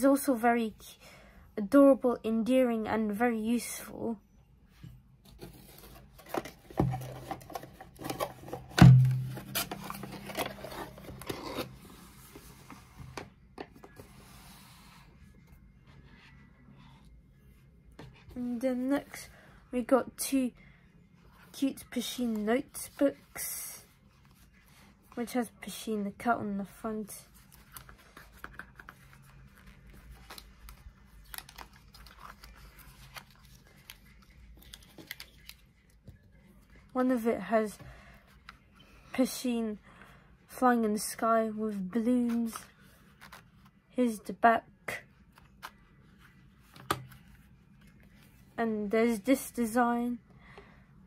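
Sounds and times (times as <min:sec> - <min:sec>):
low steady hum: 0:00.0 - 0:51.0
paper notebook rustling and tapping: 0:27.5 - 0:35.6, 0:46.6 - 0:47.4.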